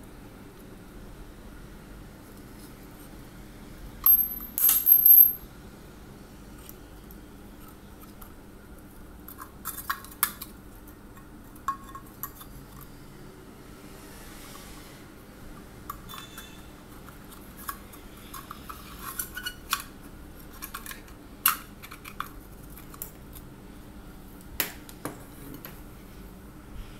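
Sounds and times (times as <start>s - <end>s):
sharp metal clatter with ring: 4.0s - 5.4s
metal clinking and rattling: 4.1s - 5.4s.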